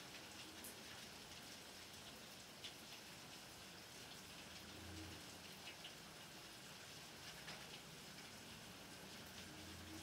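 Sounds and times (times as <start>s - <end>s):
raindrop ticks: 0.0s - 6.5s, 7.2s - 8.4s
light rain hiss: 0.0s - 10.0s.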